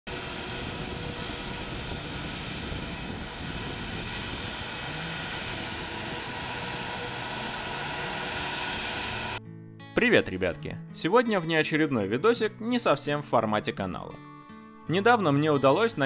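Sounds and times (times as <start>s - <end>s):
jet engines running: 0.1s - 9.4s.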